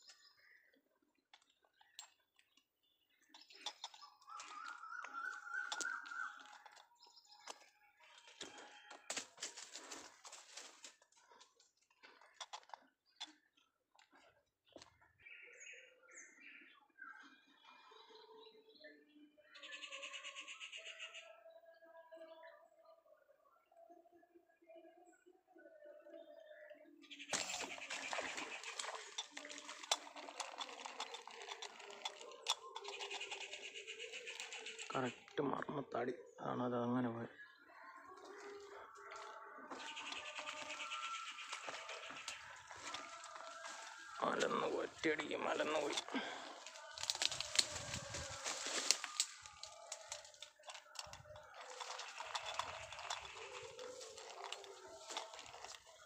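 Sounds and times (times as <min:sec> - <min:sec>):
undergrowth rustling: 0:08.4 - 0:11.4, 0:38.3 - 0:56.0
twigs snapping: 0:39.7 - 0:56.0.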